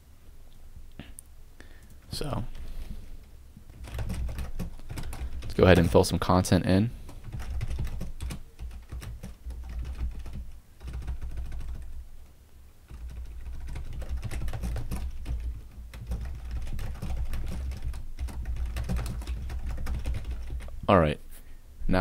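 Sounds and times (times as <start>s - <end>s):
keyboard typing: 3.7s - 6.3s, 7.0s - 12.3s, 12.9s - 20.8s.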